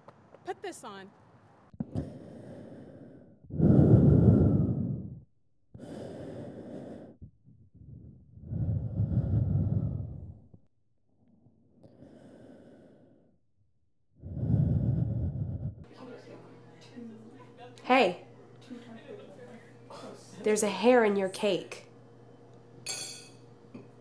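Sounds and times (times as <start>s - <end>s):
person breathing heavily: 1.8s - 10.5s, 11.8s - 13.3s, 14.2s - 15.9s.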